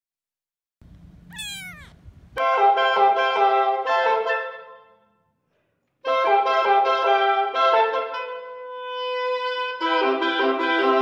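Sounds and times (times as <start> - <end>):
faint low room rumble: 0.8 - 2.4
oboes and english horn chords: 6.1 - 11.0.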